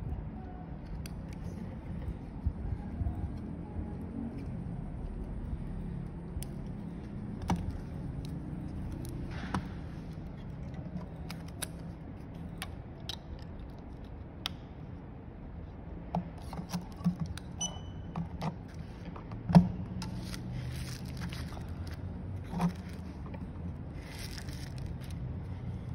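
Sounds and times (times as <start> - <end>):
cable clicks and taps: 6.1 - 14.8.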